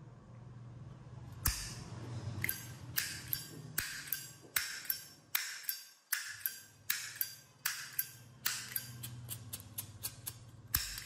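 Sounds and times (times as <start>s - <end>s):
lighter lid clinking open and shut: 6.1s - 11.0s.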